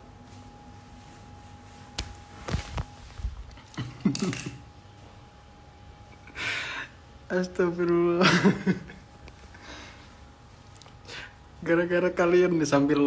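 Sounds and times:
person chuckling: 3.5s - 4.7s, 8.2s - 9.0s.

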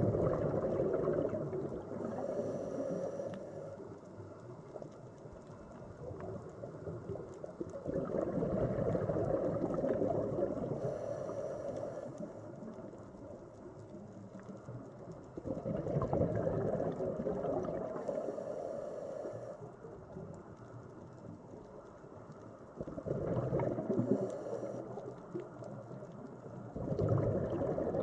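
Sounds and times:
gurgling exhaled bubbles: 0.0s - 3.4s, 6.0s - 11.4s, 15.0s - 18.4s, 22.8s - 25.9s, 26.5s - 28.0s.

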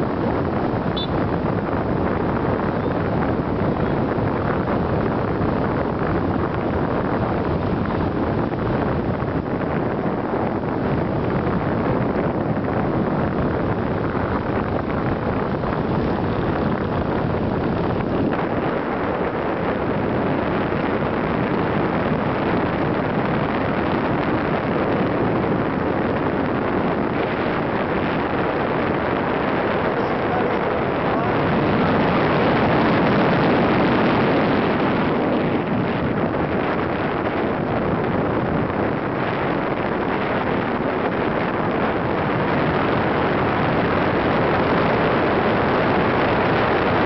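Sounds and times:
wind rushing over microphone: 0.0s - 47.0s.

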